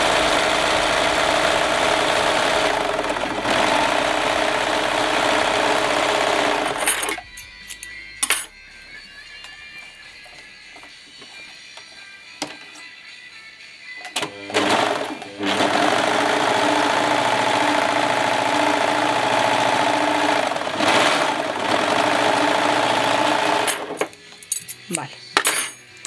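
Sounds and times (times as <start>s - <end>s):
overlocker sewing machine running: 0.0s - 7.2s, 14.2s - 24.0s.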